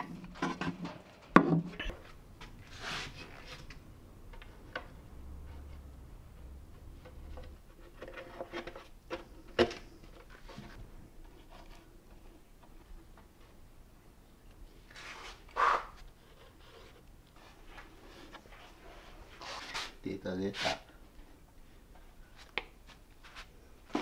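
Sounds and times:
brief scrape: 14.9s - 16.0s.

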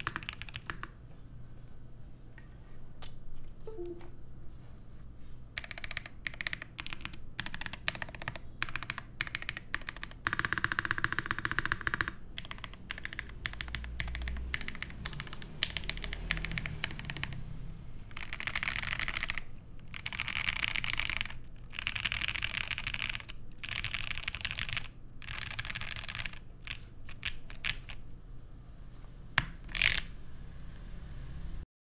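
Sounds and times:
mechanical keyboard typing: 0.0s - 1.0s, 5.6s - 17.5s, 18.1s - 28.0s, 29.4s - 30.1s.

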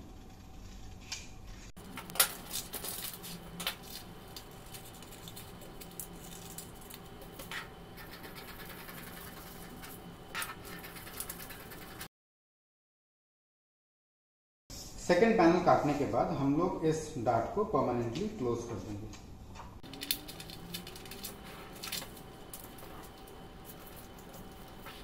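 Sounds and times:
paper rustling: 1.8s - 12.1s, 19.8s - 25.0s
scissors cutting paper: 1.8s - 12.1s, 19.8s - 25.0s.

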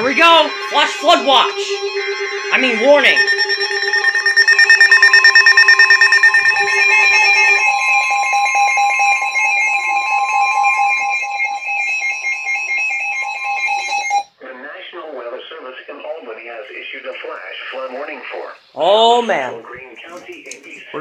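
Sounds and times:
rapidly pulsing electronic alarm tone: 0.0s - 14.3s.

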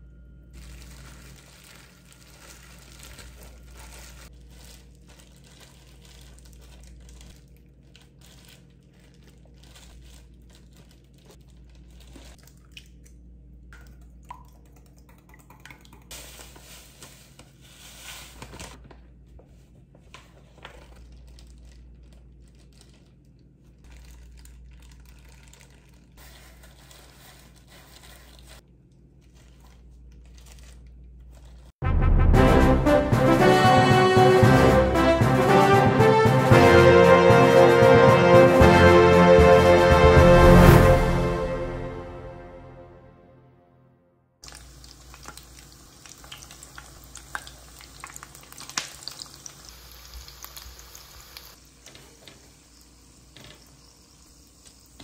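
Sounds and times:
plastic gloves crinkling: 0.5s - 12.6s, 16.1s - 31.8s, 44.4s - 51.9s.

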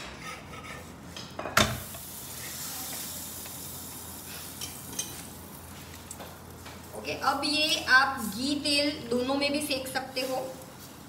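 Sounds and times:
flatbread sizzling: 1.6s - 8.7s, 9.4s - 11.0s.

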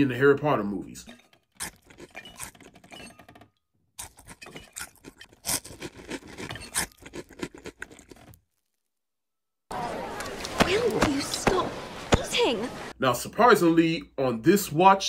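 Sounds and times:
cartoon clicks and scrapes: 1.1s - 3.4s, 4.0s - 8.4s.

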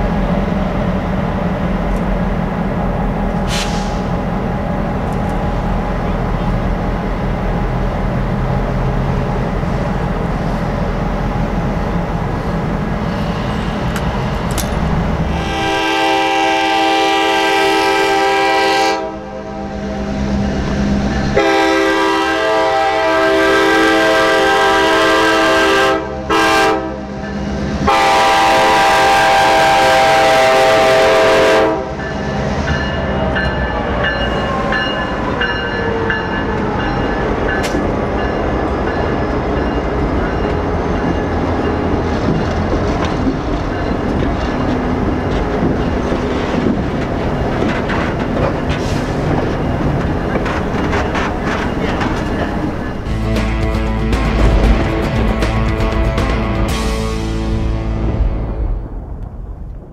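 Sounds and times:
diesel locomotives rumbling: 0.0s - 59.9s
train air horn blasts: 15.2s - 20.2s, 21.2s - 27.2s, 27.8s - 32.0s.

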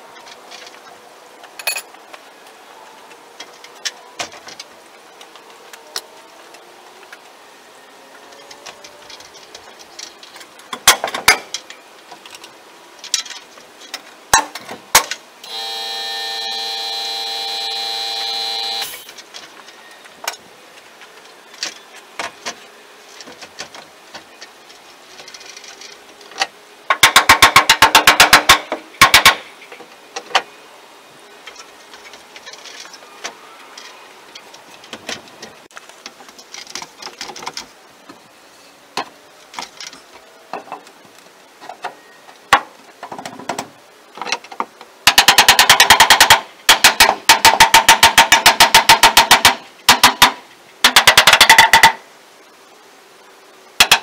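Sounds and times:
nail gun firing bursts: 27.0s - 29.4s, 45.1s - 52.0s.

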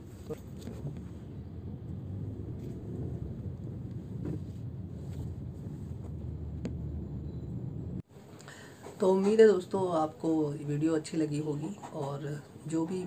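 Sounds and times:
car moving off slowly: 0.0s - 8.0s.

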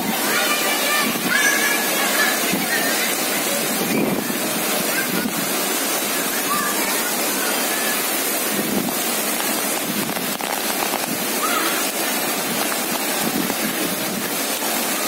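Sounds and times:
heavy rain falling: 0.0s - 15.0s
child calling faintly: 11.4s - 11.9s.

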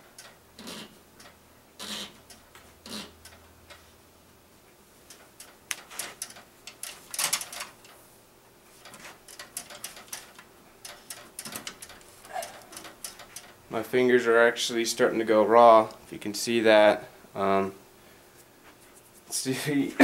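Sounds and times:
tubing clicking and scraping on metal: 0.0s - 4.0s, 5.0s - 16.2s.

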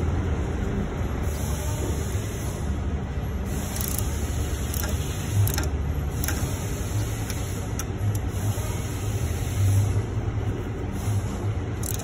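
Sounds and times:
socket ratchet clicks: 3.7s - 8.3s, 11.8s - 12.0s.

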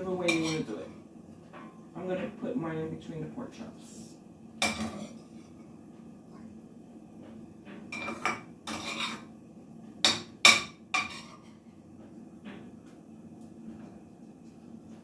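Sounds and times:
metal spoon clinking on dish: 0.2s - 0.7s, 8.0s - 9.2s.

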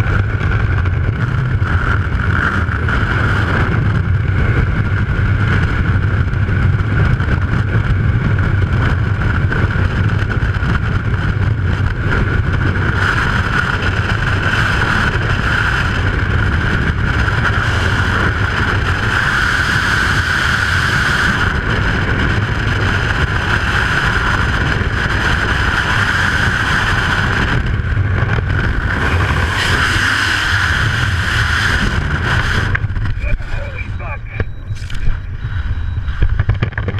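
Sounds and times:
wind rushing over microphone: 0.0s - 36.9s
high wind whistle: 28.7s - 36.7s.

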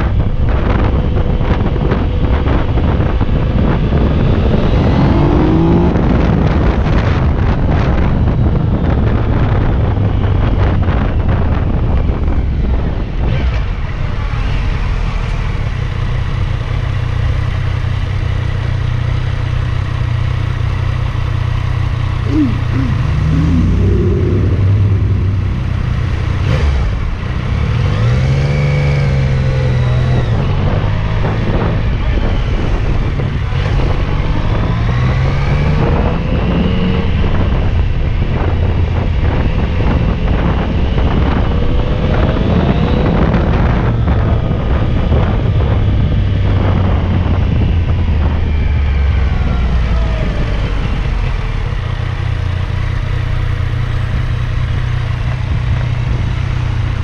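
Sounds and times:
motorcycle engine revving: 3.9s - 7.0s, 20.2s - 37.7s.

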